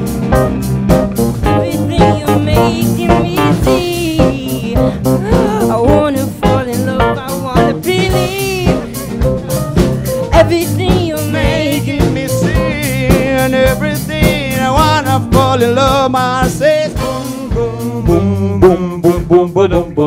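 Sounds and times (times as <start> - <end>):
electric guitars: 0.0 - 18.2
bass guitar: 0.0 - 20.0
drum kit beat: 0.0 - 20.0
man singing: 5.2 - 9.6, 10.2 - 20.0.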